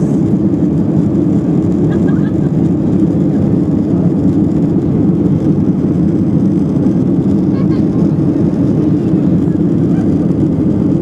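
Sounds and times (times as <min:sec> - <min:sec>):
airplane cabin engine noise: 0:00.0 - 0:11.0
rush of air: 0:00.0 - 0:11.0.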